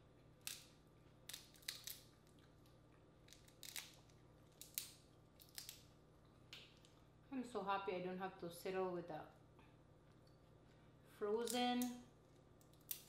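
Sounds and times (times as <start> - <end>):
crawfish shells cracking: 0.4 - 5.9, 12.6 - 13.0.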